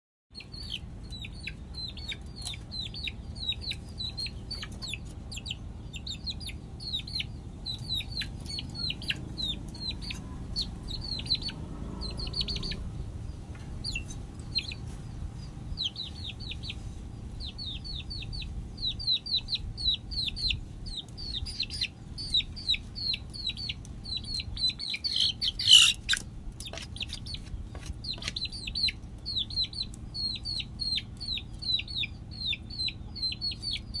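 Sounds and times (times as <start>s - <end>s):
chick peeping: 0.4s - 34.0s
harsh chicken call: 25.0s - 26.1s.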